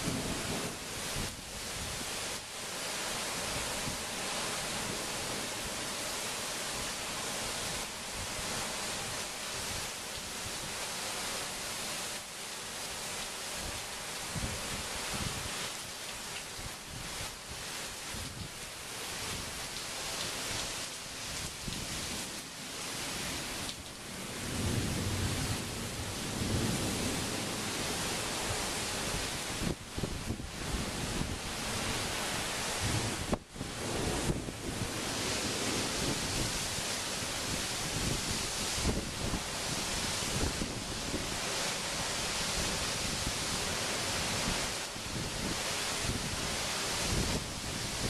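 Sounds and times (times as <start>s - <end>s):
heavy rain hiss: 0.0s - 48.0s
strong wind gusting: 29.0s - 41.6s
wind buffeting microphone: 37.4s - 41.3s.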